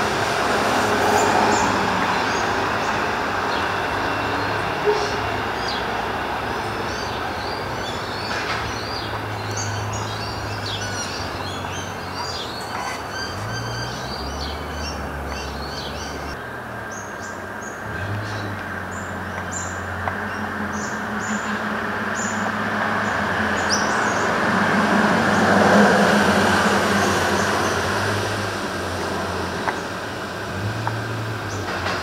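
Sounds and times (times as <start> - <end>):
train rushing rumble: 0.0 - 16.4, 19.8 - 32.0
birds chirping: 1.1 - 24.4.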